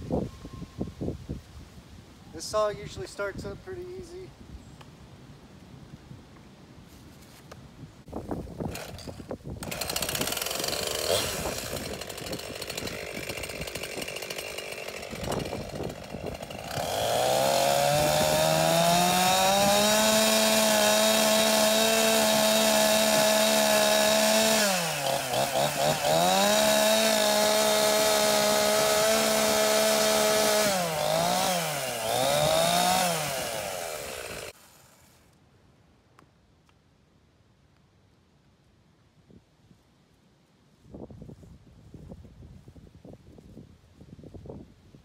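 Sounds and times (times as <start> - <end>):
chainsaw engine revving: 8.7 - 35.1.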